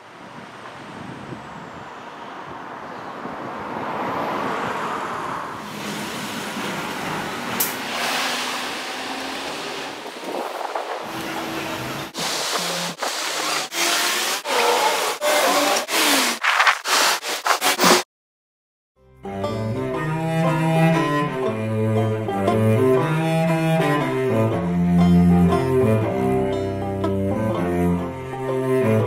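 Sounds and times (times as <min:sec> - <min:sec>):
street traffic noise: 0:00.0 - 0:13.7.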